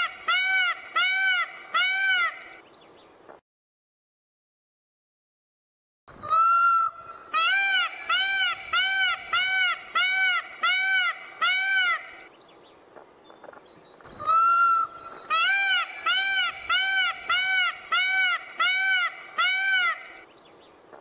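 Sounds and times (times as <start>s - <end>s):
peacock honking calls: 0.0s - 2.6s, 6.2s - 12.3s, 14.2s - 20.3s
peacock long drawn-out call: 0.0s - 2.6s, 6.2s - 12.3s, 14.2s - 20.3s.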